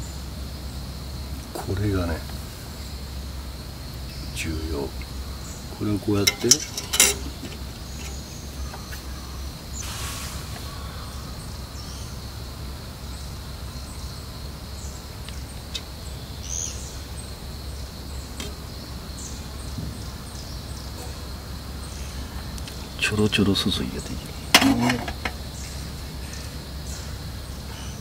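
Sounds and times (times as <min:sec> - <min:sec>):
high insect trill: 0:00.0 - 0:28.0
faint bird chirps: 0:01.4 - 0:28.0
brief hiss: 0:09.8 - 0:10.8.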